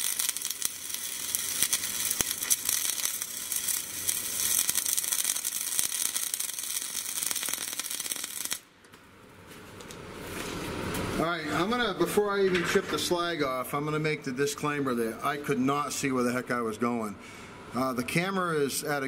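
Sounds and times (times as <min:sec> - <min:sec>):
welding arc crackling: 0:00.0 - 0:08.7.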